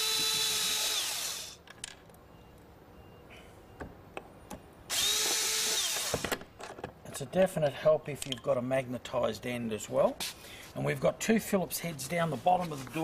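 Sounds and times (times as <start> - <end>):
electric screwdriver whirring: 0.0 - 1.6, 4.9 - 6.4.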